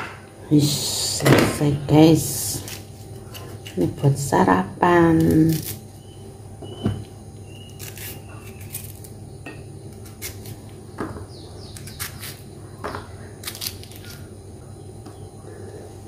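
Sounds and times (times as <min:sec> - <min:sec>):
faint low hum: 0:00.0 - 0:16.0
knife cutting pineapple: 0:05.0 - 0:05.8, 0:07.6 - 0:09.1, 0:09.9 - 0:10.7, 0:13.4 - 0:14.3.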